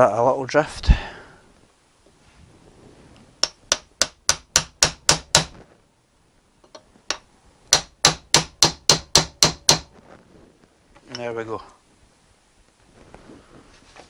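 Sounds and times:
hammer tapping metal drift: 0:03.4 - 0:05.5, 0:06.7 - 0:09.9.

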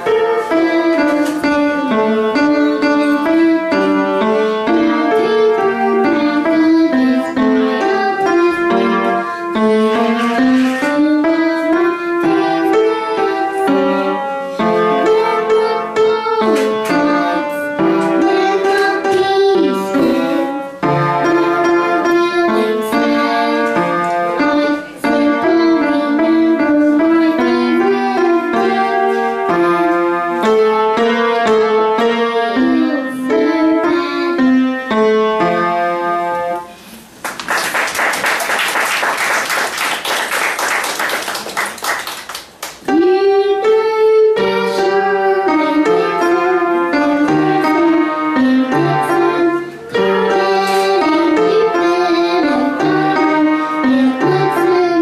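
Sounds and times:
piano melody over chords: 0:00.0 - 0:36.8, 0:42.8 - 0:55.0
audience clapping: 0:37.2 - 0:42.8.

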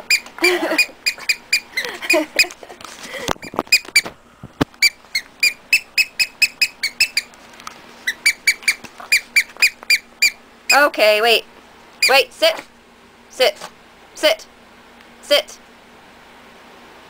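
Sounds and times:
rubber squeaky toy squeaking: 0:00.0 - 0:02.6, 0:03.4 - 0:04.1, 0:04.8 - 0:07.3, 0:08.0 - 0:10.9, 0:12.0 - 0:12.3.

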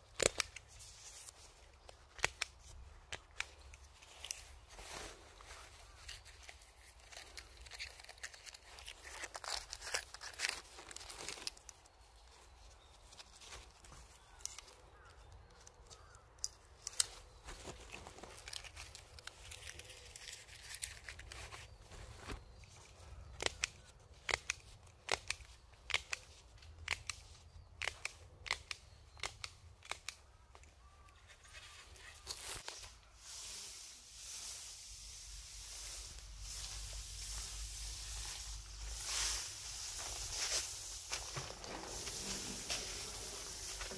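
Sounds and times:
plastic film crinkling: 0:03.2 - 0:12.0, 0:17.3 - 0:22.6, 0:35.1 - 0:43.9
plastic sheeting handled: 0:32.1 - 0:43.9.

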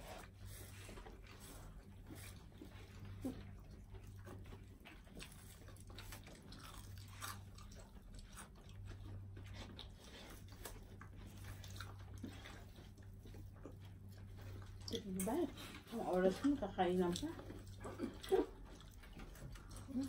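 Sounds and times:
steady low hum: 0:00.0 - 0:20.0
crunching bites and chewing: 0:00.2 - 0:14.9.

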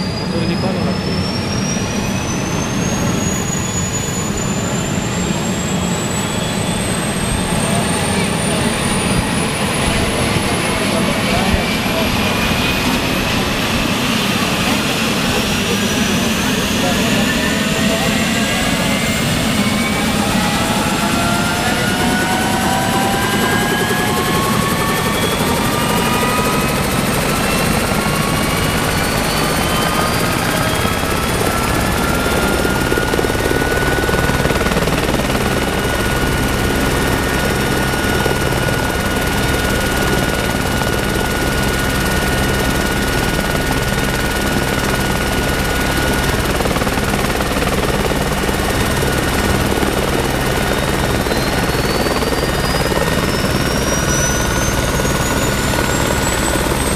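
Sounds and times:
helicopter turbine whine: 0:00.0 - 0:56.9.

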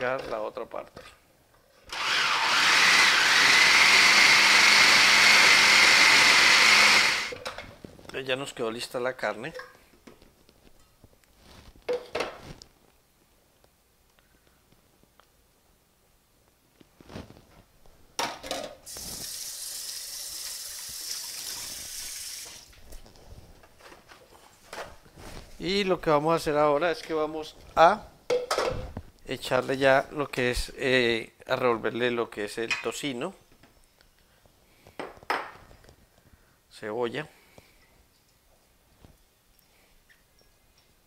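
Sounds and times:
food processor motor whining: 0:01.9 - 0:07.4.

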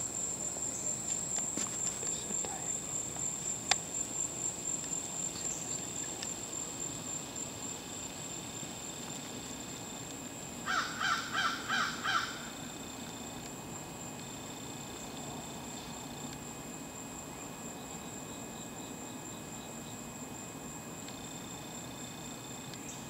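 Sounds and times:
crow cawing: 0:10.6 - 0:12.6.

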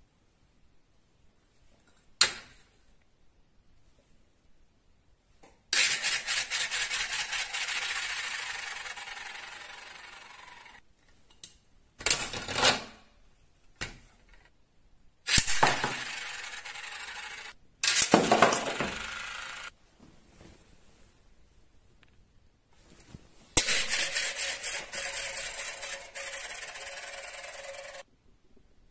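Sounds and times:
magnets rattling on steel plate: 0:23.6 - 0:28.0.

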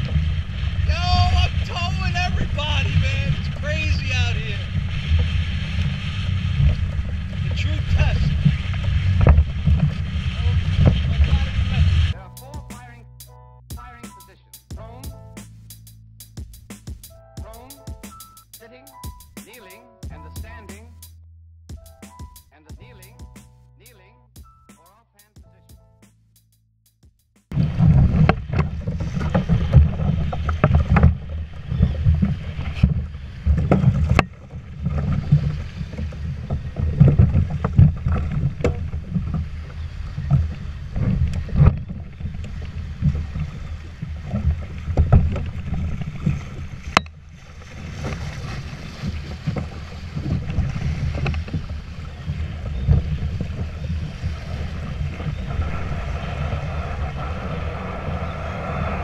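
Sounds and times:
gusty wind on microphone: 0:00.0 - 0:12.2, 0:27.5 - 0:59.0
water splashing against hull: 0:00.0 - 0:15.6, 0:27.5 - 0:59.0.

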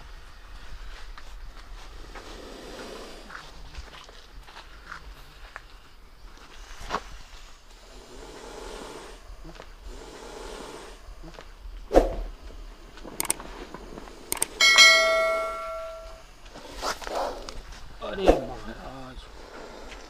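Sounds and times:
soft noise: 0:06.4 - 0:18.7
sharp clicks: 0:13.1 - 0:13.5, 0:14.3 - 0:14.9
chime-like bell ding: 0:14.6 - 0:16.2.

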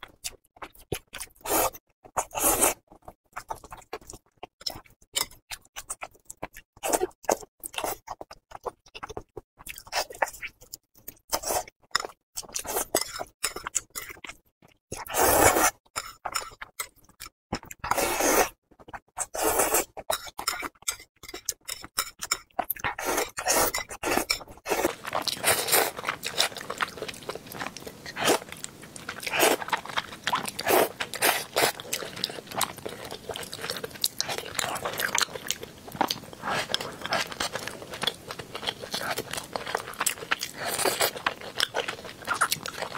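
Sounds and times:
slurping noodles: 0:17.9 - 0:18.5, 0:22.9 - 0:42.9
wet chewing: 0:18.7 - 0:42.9.

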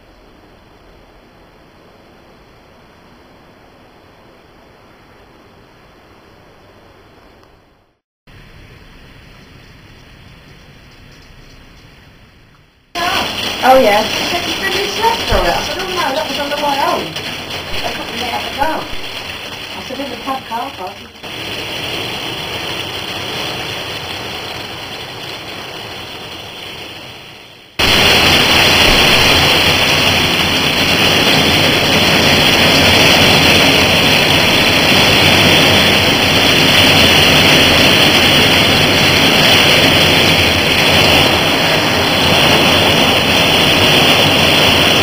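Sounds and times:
heavy rain pouring: 0:12.9 - 0:45.0.

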